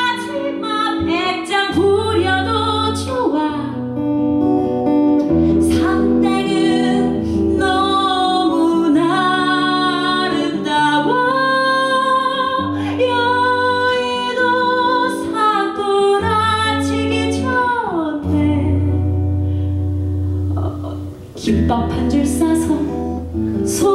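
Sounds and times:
woman singing: 0.0 - 4.1, 5.3 - 19.4, 20.3 - 23.9
acoustic guitar: 0.0 - 23.9.

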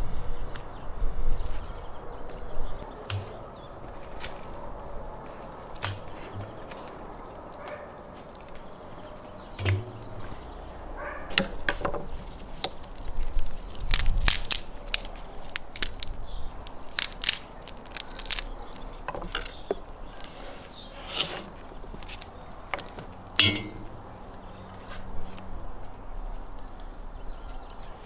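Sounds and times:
heavy thump: 9.6 - 10.3.

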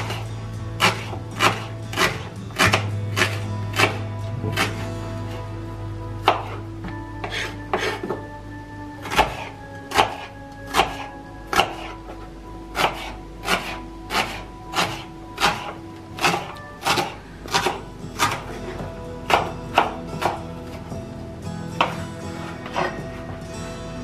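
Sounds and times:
background music: 0.0 - 24.0
knife chopping on cutting board: 0.8 - 5.4, 6.2 - 6.6, 7.2 - 8.2, 9.0 - 12.0, 12.8 - 20.8, 21.8 - 22.0.

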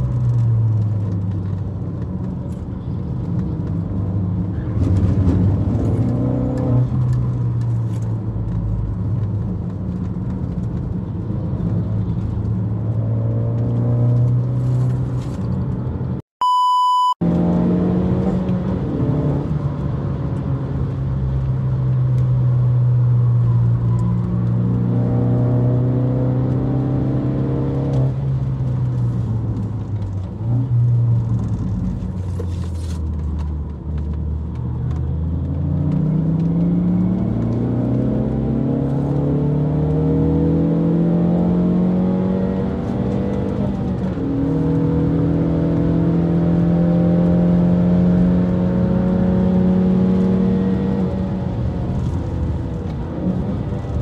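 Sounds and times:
electronic beep: 16.4 - 17.2
car engine revving: 34.9 - 54.0.

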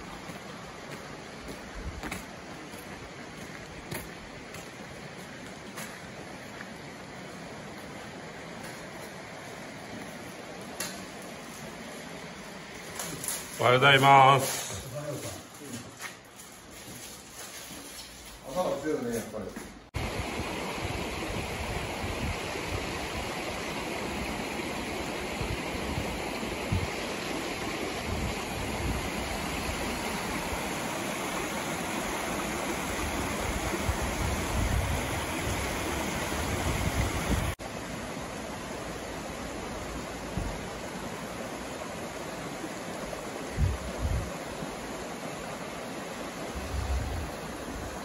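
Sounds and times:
river water rushing: 0.0 - 15.2, 20.0 - 48.0
wind bumps on microphone: 33.6 - 37.6, 43.5 - 44.4, 46.6 - 47.4.

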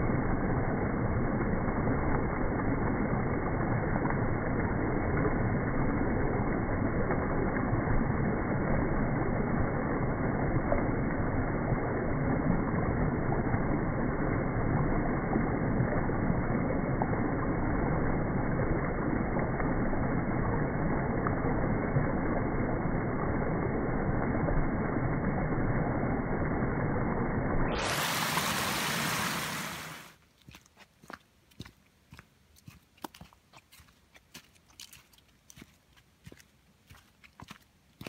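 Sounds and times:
creek rushing over logs: 27.6 - 38.0.

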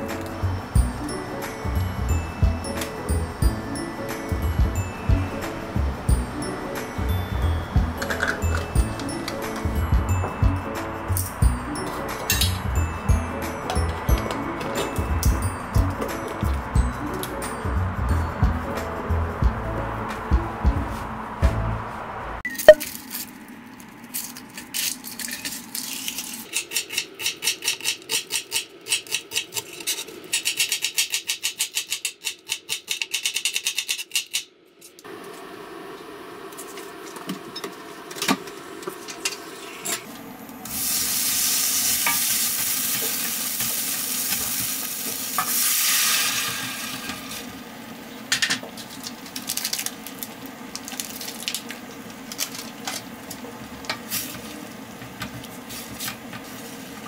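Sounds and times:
onions sizzling in a pan: 40.6 - 48.2.

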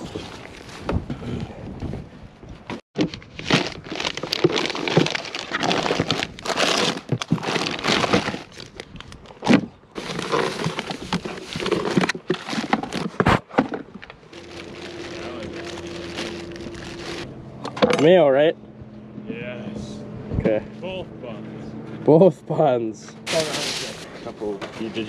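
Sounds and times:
plastic packaging crinkling: 3.0 - 9.4, 14.3 - 17.3.

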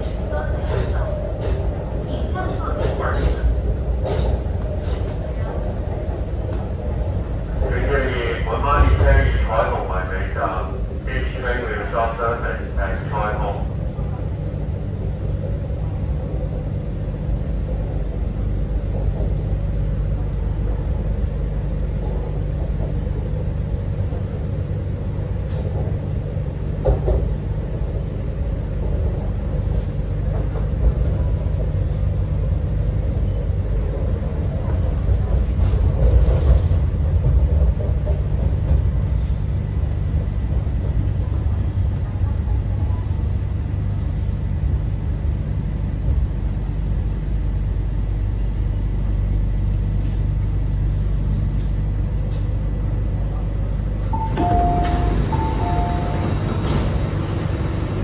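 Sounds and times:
metro train rumbling: 0.0 - 58.0.

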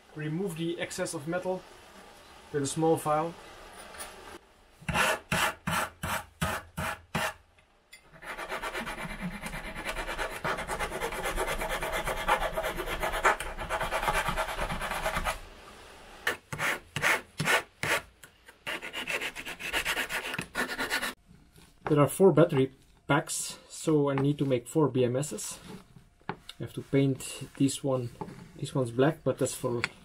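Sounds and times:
hand file rasping on metal: 8.2 - 15.3, 18.6 - 21.2.

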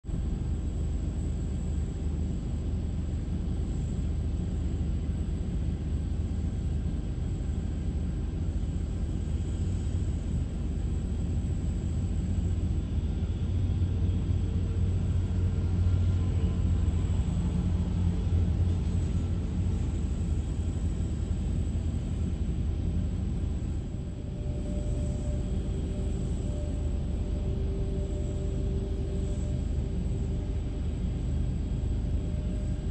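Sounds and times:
steady hum: 0.1 - 32.9
jet engines rumbling: 5.6 - 32.9.

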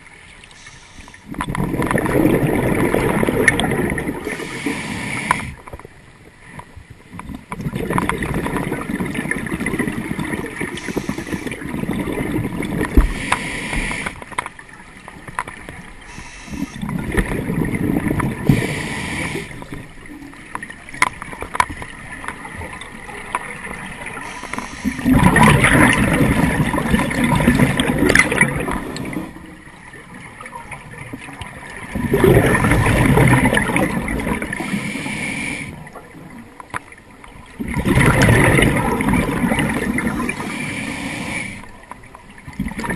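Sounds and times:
diver inhaling through regulator: 0.6 - 1.3, 4.2 - 5.6, 10.7 - 11.7, 13.0 - 14.2, 16.0 - 16.8, 18.4 - 19.7, 24.2 - 25.2, 34.5 - 35.8, 40.0 - 41.7
exhaust bubbles rushing: 1.6 - 4.2, 25.0 - 29.1, 37.6 - 40.1.

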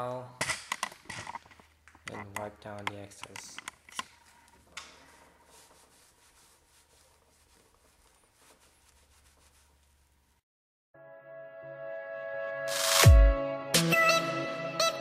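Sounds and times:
towel rubbing on car paint: 5.0 - 10.4.

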